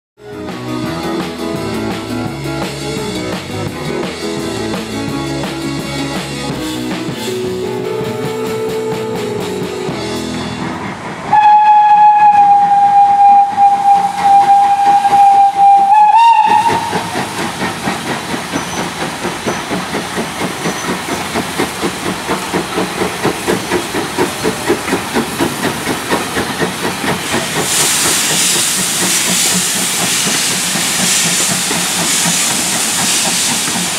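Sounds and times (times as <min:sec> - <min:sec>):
steam locomotive running: 0:00.2 - 0:33.9
locomotive exhaust beats: 0:11.0 - 0:33.9
steam hissing: 0:11.2 - 0:33.9
steam whistle: 0:11.3 - 0:17.2.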